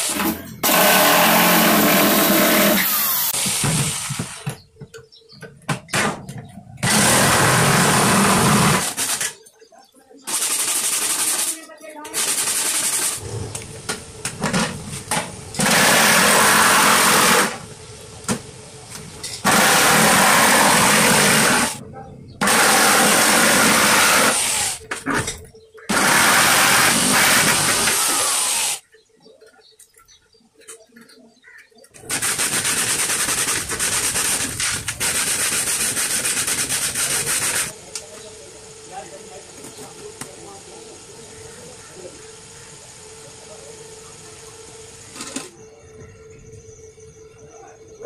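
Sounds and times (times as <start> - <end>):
jigsaw cutting plastic bottle: 0.0 - 3.0, 6.8 - 9.3, 15.6 - 17.6, 19.4 - 21.8, 22.4 - 24.8, 25.9 - 28.8, 32.1 - 37.7.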